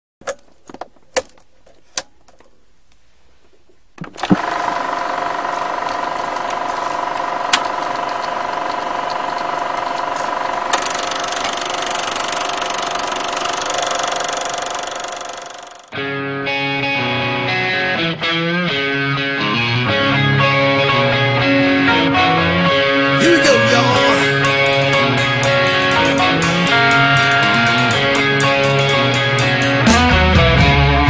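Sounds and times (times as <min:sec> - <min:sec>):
mechanical whirring with hum: 0:04.1 - 0:15.9.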